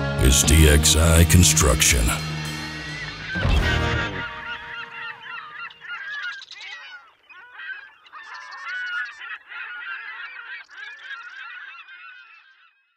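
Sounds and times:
geese honking: 0:00.0 - 0:12.3.

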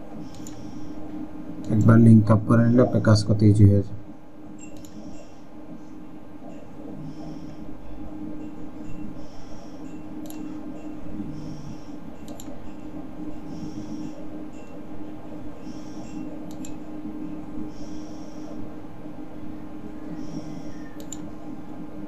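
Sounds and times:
steady low hum: 0:00.0 - 0:22.0
computer mouse clicks: 0:00.2 - 0:00.8, 0:01.6 - 0:02.0, 0:04.6 - 0:05.2, 0:10.2 - 0:10.5, 0:11.7 - 0:12.7, 0:15.6 - 0:16.9, 0:20.2 - 0:21.4.

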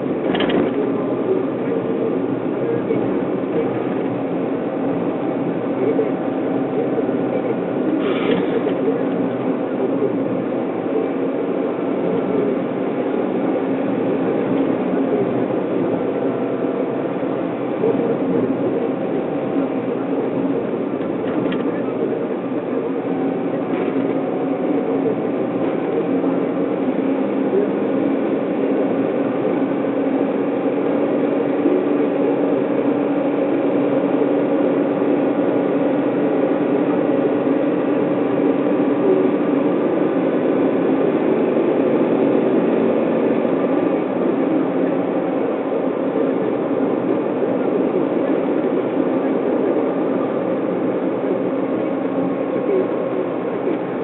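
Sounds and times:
car engine hum: 0:00.0 - 0:54.0
tyre and road noise: 0:03.6 - 0:10.4.

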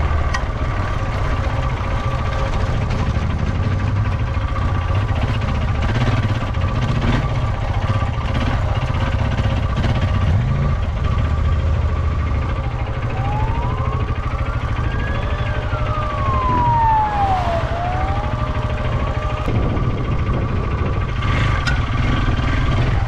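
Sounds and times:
motorcycle engine running: 0:00.0 - 0:23.0
siren wailing: 0:11.9 - 0:21.2, 0:22.4 - 0:23.0.

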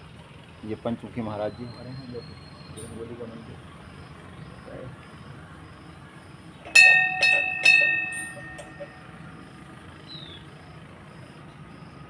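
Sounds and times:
hanging temple bell ringing: 0:06.6 - 0:10.0.

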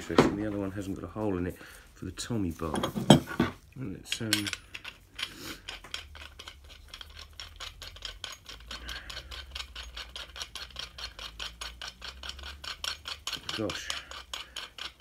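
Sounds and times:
threaded shaft clicking and grating: 0:04.1 - 0:15.0.

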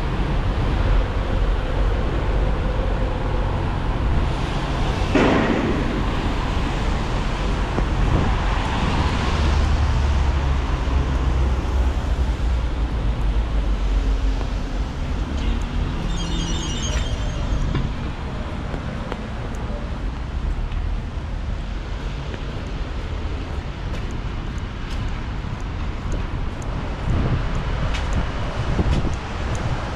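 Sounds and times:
engines rumbling past: 0:00.0 - 0:20.1.

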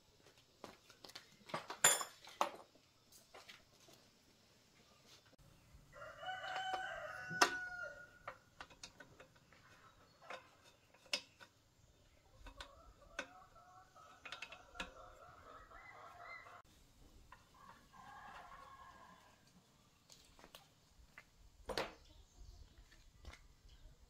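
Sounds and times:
rooster crowing: 0:05.9 - 0:08.3, 0:15.0 - 0:16.6, 0:17.6 - 0:19.4.

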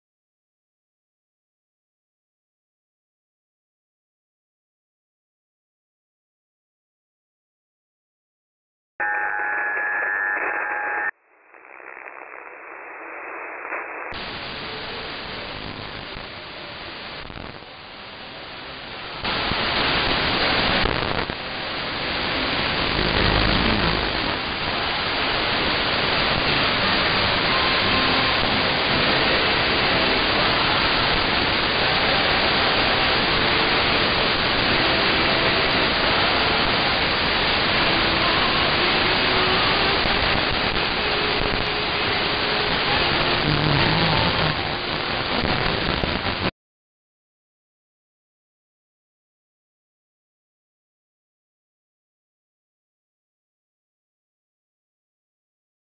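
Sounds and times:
radio whistling tones: 0:09.0 - 0:16.3, 0:26.0 - 0:33.6, 0:37.4 - 0:46.5
radio static hiss: 0:09.0 - 0:46.5.

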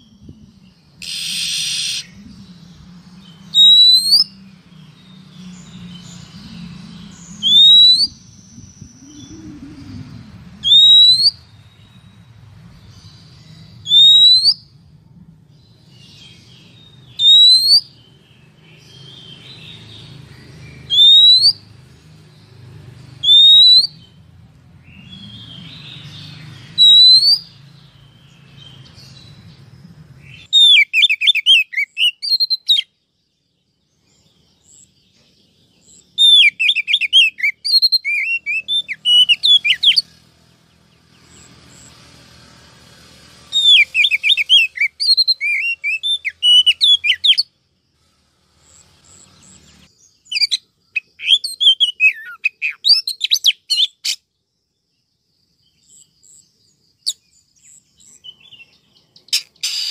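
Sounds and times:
rising whistled bird notes: 0:00.0 - 0:12.1, 0:13.0 - 0:14.8, 0:16.1 - 0:18.0, 0:18.8 - 0:21.7, 0:23.2 - 0:24.2, 0:24.8 - 0:29.3, 0:30.2 - 0:32.9, 0:36.1 - 0:40.2, 0:43.5 - 0:47.5, 0:58.0 - 0:59.9
bird chattering: 0:07.3 - 0:11.4, 0:50.3 - 0:54.2, 0:59.2 - 0:59.9.

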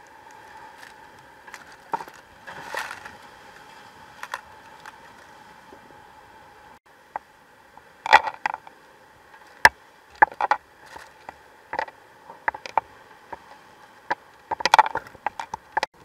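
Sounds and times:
faint steady hiss: 0:00.0 - 0:16.0
sharp clicks and knocks: 0:14.1 - 0:16.0.

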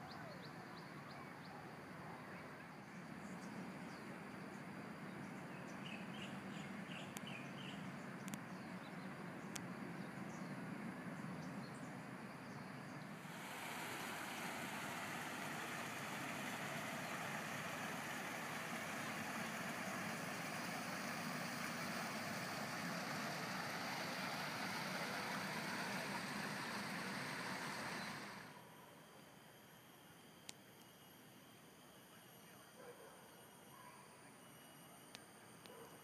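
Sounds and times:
outdoor hiss and hum: 0:00.0 - 0:36.0
water gushing into pool: 0:13.2 - 0:28.4.

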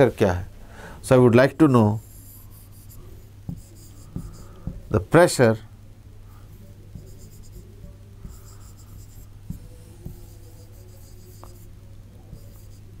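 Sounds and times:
marker squeaking on a board: 0:02.0 - 0:04.6, 0:08.2 - 0:11.7, 0:12.3 - 0:13.0.

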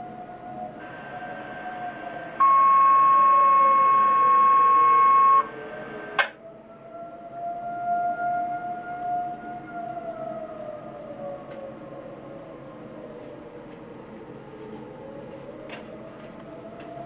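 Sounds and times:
tornado siren wailing: 0:00.0 - 0:17.0
radio hiss: 0:00.8 - 0:06.3
electronic alert tone: 0:02.4 - 0:05.5.

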